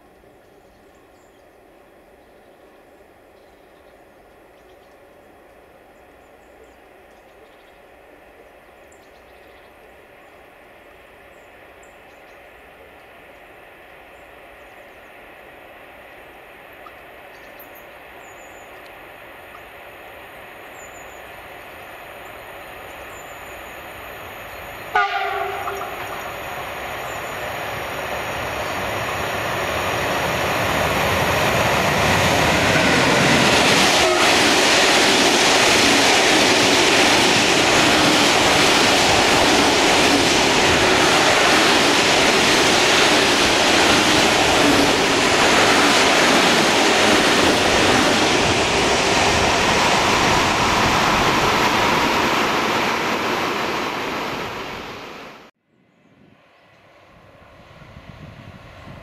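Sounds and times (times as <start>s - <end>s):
train wheels rumbling on rails: 22.2s - 54.9s
locomotive horn blast: 24.9s - 26.3s, 33.9s - 34.5s.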